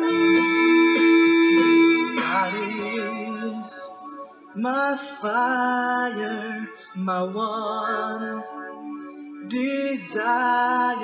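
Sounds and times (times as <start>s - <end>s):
backing music: 0.0s - 5.6s
person singing gospel song: 0.0s - 11.0s.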